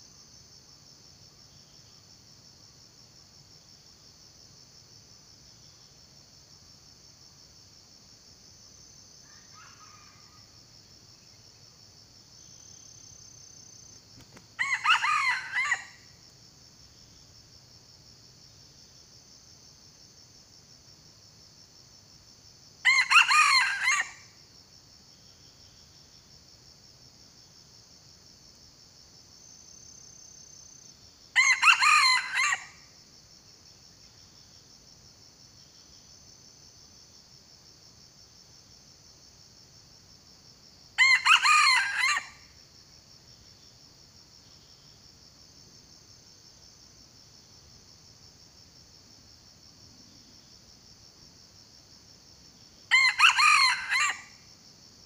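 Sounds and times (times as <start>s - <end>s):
high insect drone: 0.0s - 55.0s
rooster crowing: 14.6s - 16.0s, 22.8s - 24.2s, 31.4s - 32.8s, 41.0s - 42.4s, 52.9s - 54.4s.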